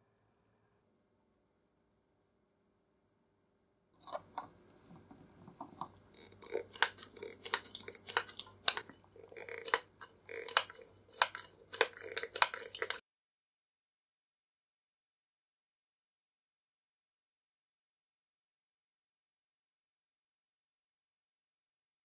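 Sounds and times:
oiler pump metallic clicks: 9.6s - 13.0s.

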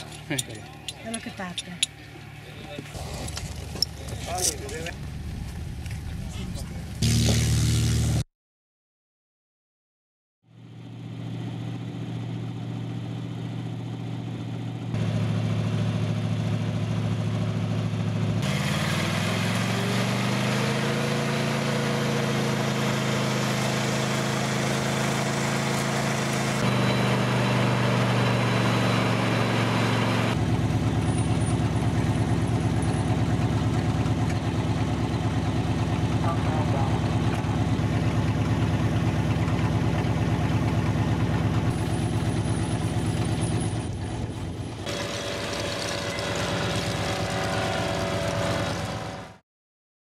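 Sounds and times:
winch engine revving: 18.4s - 49.4s.

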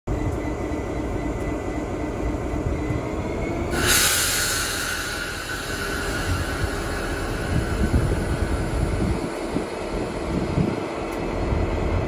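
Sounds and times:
diesel locomotive engine running: 0.1s - 12.0s
loud steady hiss: 3.7s - 10.3s.

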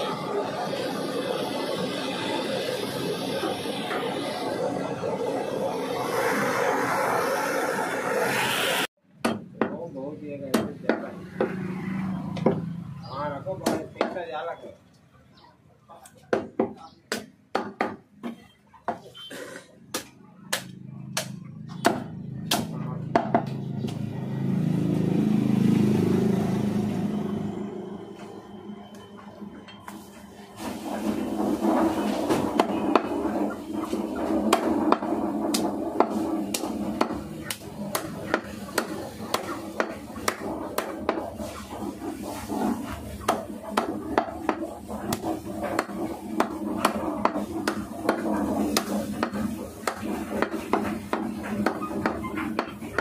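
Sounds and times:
passing vehicle engine rumble: 11.0s - 13.6s, 20.7s - 42.7s.

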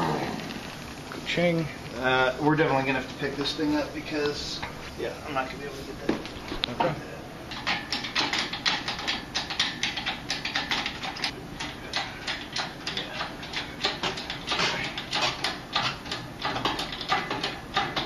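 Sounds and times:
hydraulic hoist pump clicking: 7.5s - 18.0s.

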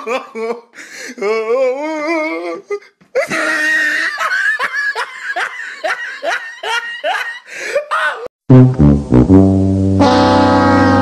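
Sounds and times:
person laughing hard: 0.0s - 8.3s.

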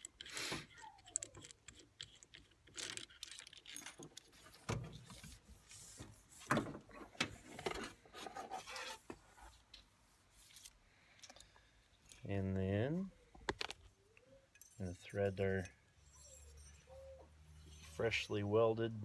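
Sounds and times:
small metallic clicks and clinks: 0.0s - 4.7s, 10.5s - 12.4s, 13.3s - 17.0s.

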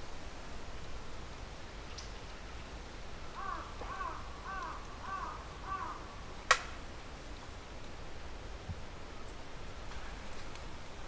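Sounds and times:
crow cawing: 3.4s - 6.1s.

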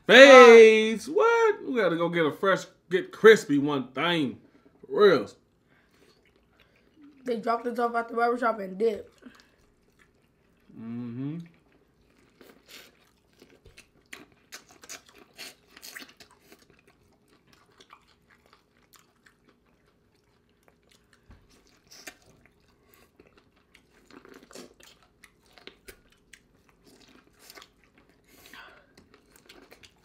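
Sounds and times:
chewing and biting: 9.0s - 10.7s, 11.4s - 30.0s.

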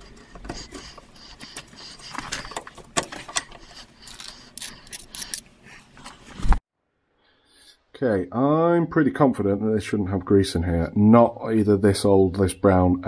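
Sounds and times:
metal clicks and scrapes: 0.0s - 6.2s.

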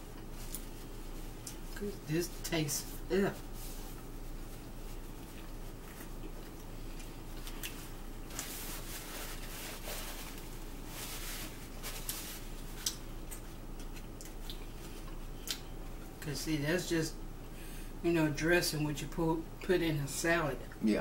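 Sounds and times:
paper towel rustling: 2.2s - 6.2s, 7.5s - 12.8s
chewing: 3.9s - 10.5s, 11.8s - 16.1s.

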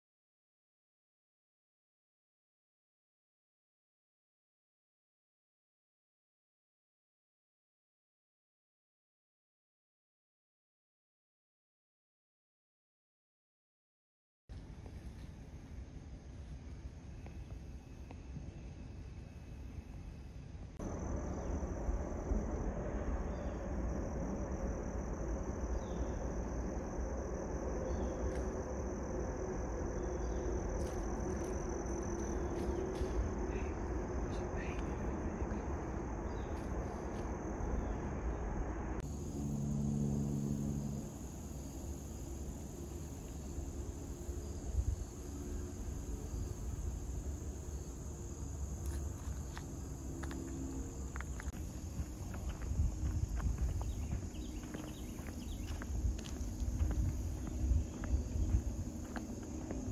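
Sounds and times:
insects droning: 14.5s - 59.9s
low rumble: 20.5s - 47.3s, 48.8s - 59.9s.

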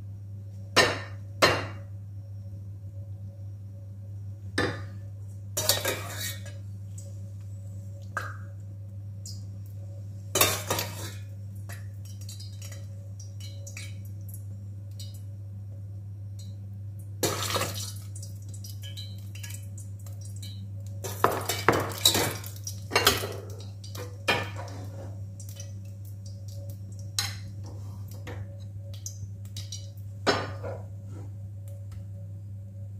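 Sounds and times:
low hum: 0.0s - 10.5s, 23.6s - 32.9s.

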